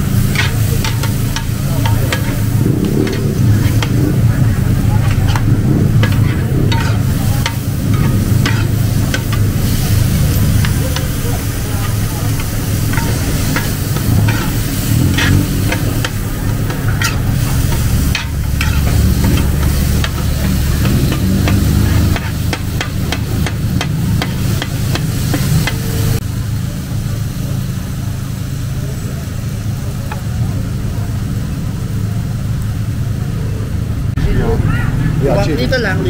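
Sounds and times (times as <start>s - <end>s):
low rumble: 0.0s - 26.3s
frying sizzle: 0.0s - 34.2s
metal spatulas scraping a steel pan: 0.2s - 4.3s, 5.0s - 25.8s.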